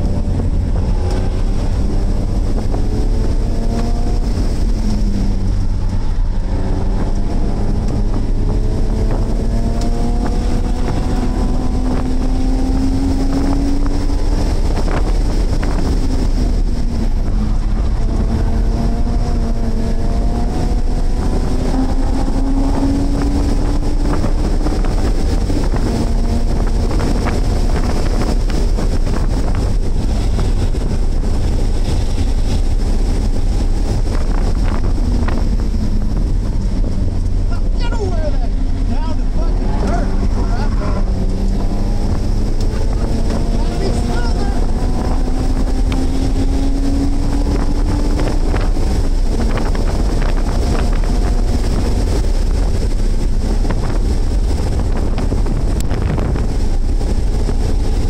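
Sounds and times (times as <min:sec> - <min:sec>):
car engine revving: 0:00.0 - 0:58.0
road noise: 0:00.0 - 0:58.0
wind rushing: 0:00.0 - 0:58.0.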